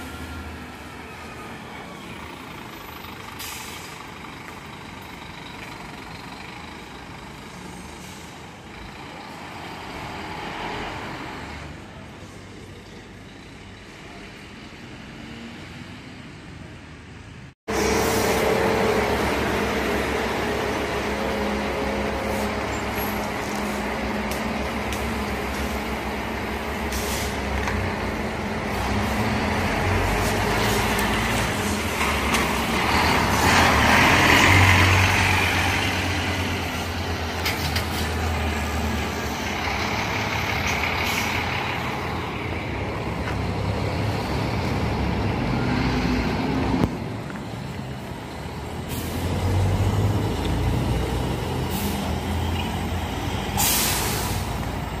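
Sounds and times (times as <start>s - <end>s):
diesel bus engines running: 0.0s - 55.0s
air brakes hissing: 3.2s - 4.1s, 7.6s - 8.6s, 26.8s - 27.6s, 48.8s - 49.4s, 51.6s - 52.2s, 53.4s - 54.7s.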